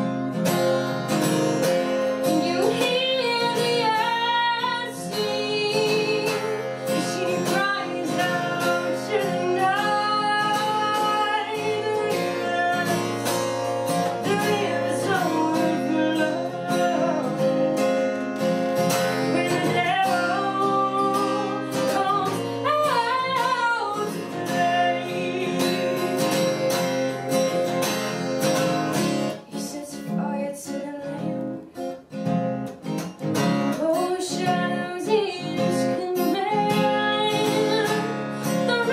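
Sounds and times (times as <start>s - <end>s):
acoustic guitar strumming: 0.0s - 38.9s
woman singing: 1.6s - 27.6s, 29.2s - 38.9s.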